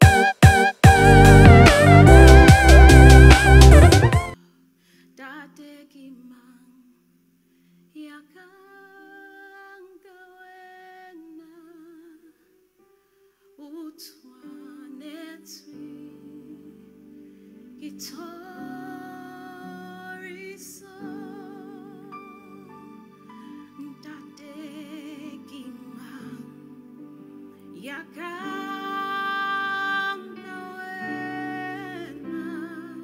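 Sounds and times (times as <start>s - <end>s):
sustained low chords: 0.8s - 4.4s
woman singing into microphone: 8.0s - 12.3s, 13.6s - 17.1s, 17.8s - 22.5s, 23.4s - 26.8s, 27.7s - 33.0s.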